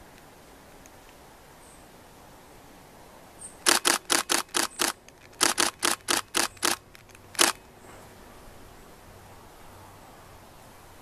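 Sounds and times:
camera shutter clicks: 3.6 - 7.6.

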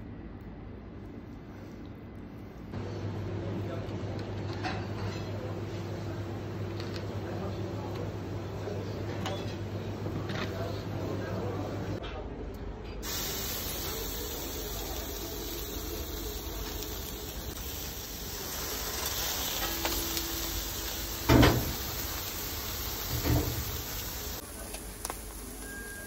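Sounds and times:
fish sizzling on a grill: 13.0 - 26.0.

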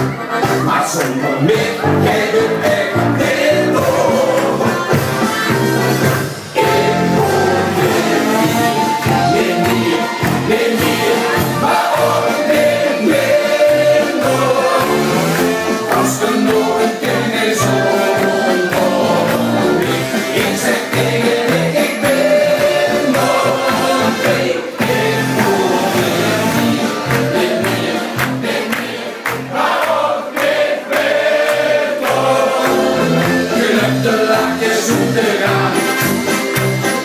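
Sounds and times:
men singing into microphones: 0.4 - 36.3.

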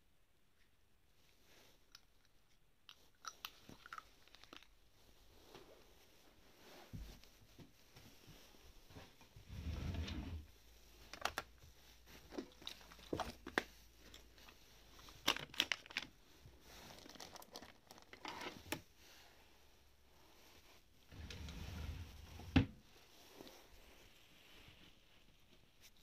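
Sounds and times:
plastic packets crinkling: 3.3 - 4.8, 12.2 - 18.5
drawer sliding open: 9.5 - 10.5, 21.1 - 22.7.

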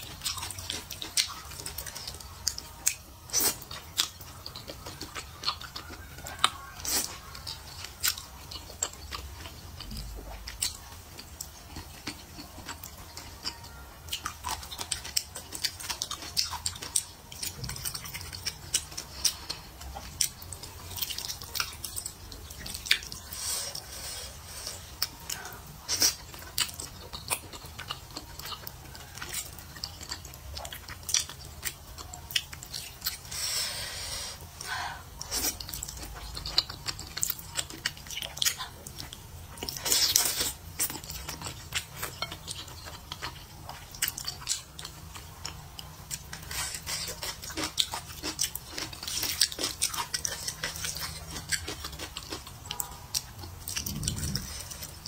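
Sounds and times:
wet chewing smacks: 35.2 - 55.0.

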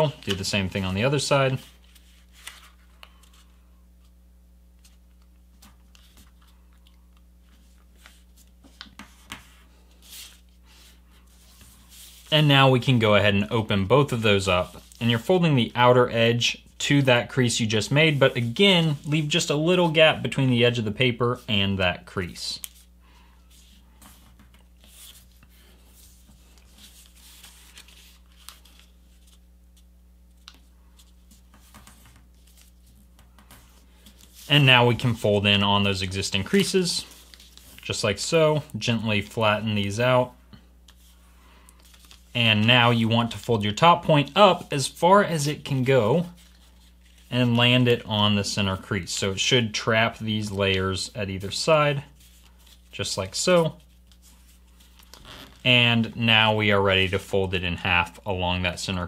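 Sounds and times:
paper rustling and crinkling: 0.0 - 3.6, 22.6 - 38.7, 40.9 - 43.6, 45.4 - 47.6, 51.4 - 55.7.

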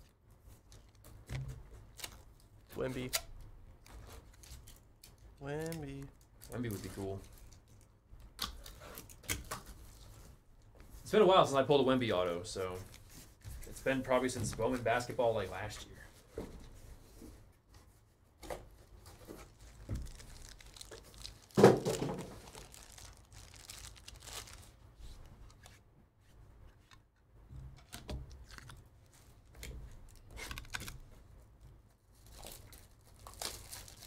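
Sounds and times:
cardboard and wrapping rustling: 3.9 - 7.9, 12.0 - 26.9, 32.1 - 34.0.

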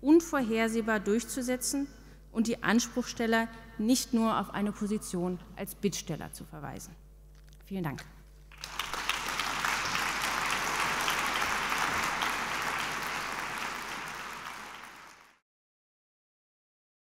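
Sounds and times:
audience applauding: 8.5 - 15.4.

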